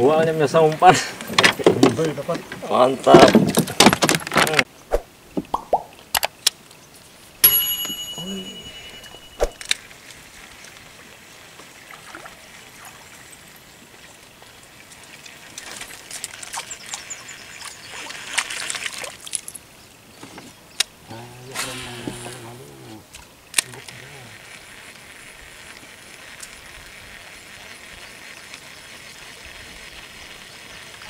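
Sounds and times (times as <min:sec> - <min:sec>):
sharp high ringing tone: 0:07.4 - 0:09.6
water trickling and splashing: 0:09.4 - 0:20.7, 0:21.7 - 0:31.0
small ticks and crackles: 0:09.6 - 0:21.0, 0:22.0 - 0:31.0.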